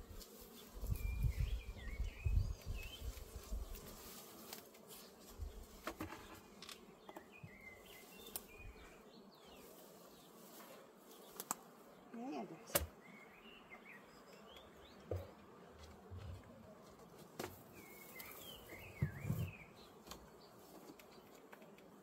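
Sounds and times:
bees buzzing: 0.0 - 22.0
wind gusts on microphone: 0.8 - 3.7
hive tool clicking on wood: 11.4 - 11.6, 12.7 - 12.9.

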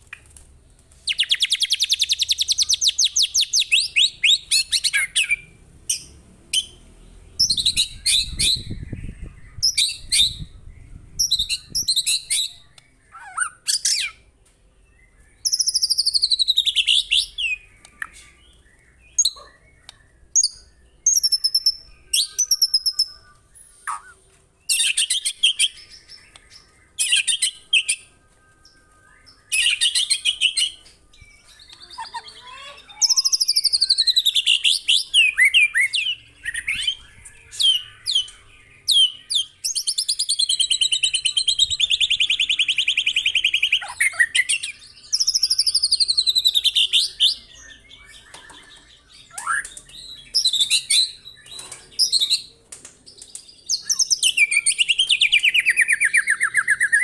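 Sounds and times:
songbird singing with trills: 1.1 - 57.0.

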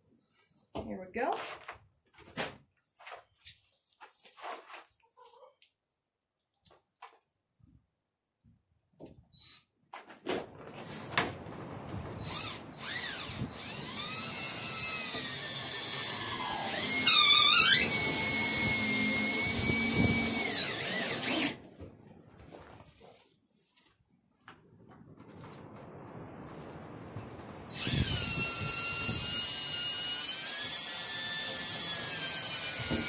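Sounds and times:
cordless drill driving screws: 12.3 - 21.6, 27.7 - 33.0.

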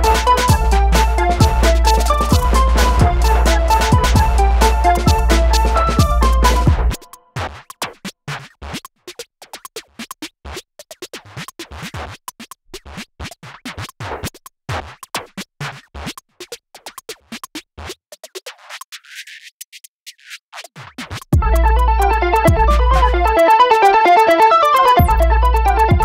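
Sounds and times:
electronic music: 0.0 - 7.3, 21.4 - 26.0
turntable scratching: 0.0 - 26.0.

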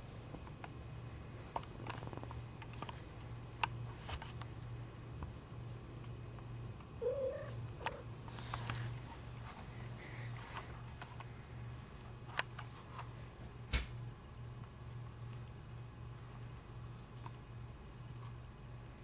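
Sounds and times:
cat chirp: 7.0 - 8.0
cat purring: 7.0 - 8.1.

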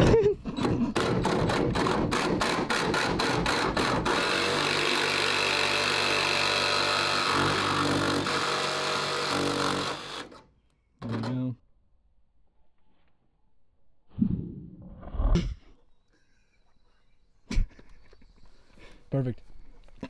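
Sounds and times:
jigsaw cutting sheet metal: 0.6 - 11.4.

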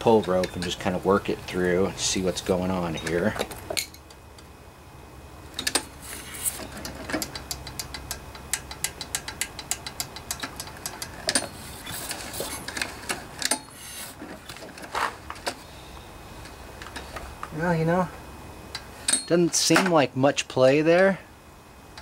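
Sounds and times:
engine valves clicking: 5.5 - 14.2.

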